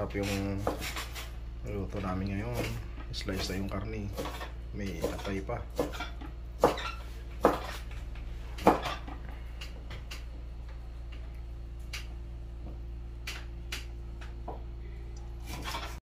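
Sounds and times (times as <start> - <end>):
knife chopping on wooden board: 0.2 - 1.3, 2.5 - 7.9, 8.6 - 10.2.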